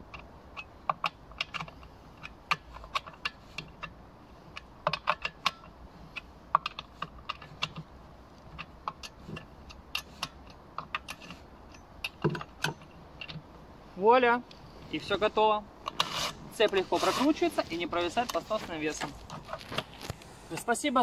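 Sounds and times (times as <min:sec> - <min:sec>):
wrench clicking on chainsaw nuts: 0:00.0 - 0:07.9.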